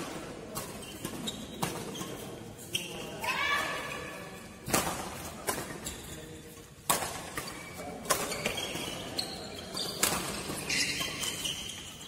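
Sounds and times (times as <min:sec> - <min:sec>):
shoes squeaking on court: 0:00.0 - 0:03.2, 0:04.6 - 0:12.0
racket hitting shuttlecock: 0:04.6 - 0:05.8, 0:06.8 - 0:08.9, 0:09.9 - 0:11.5.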